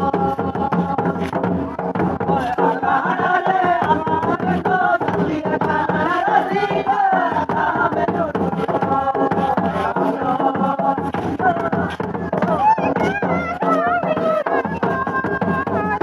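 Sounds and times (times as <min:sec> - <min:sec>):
barrel drum beating: 0:00.0 - 0:16.0
group chanting folk song: 0:00.0 - 0:16.0.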